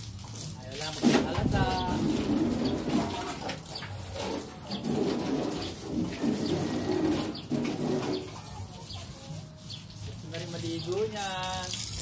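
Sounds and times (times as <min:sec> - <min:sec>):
pigeons cooing: 0:01.8 - 0:09.0.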